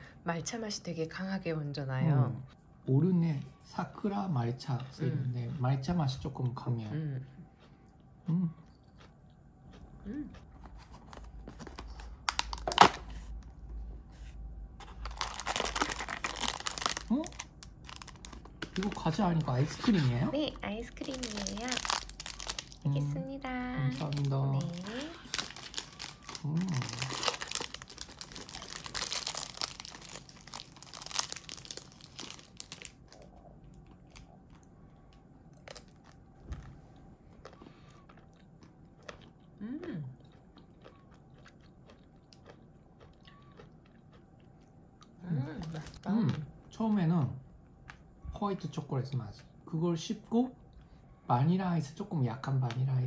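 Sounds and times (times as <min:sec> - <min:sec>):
plastic wrapper crinkling: 0:10.7 - 0:13.3, 0:14.8 - 0:23.1, 0:23.9 - 0:33.3.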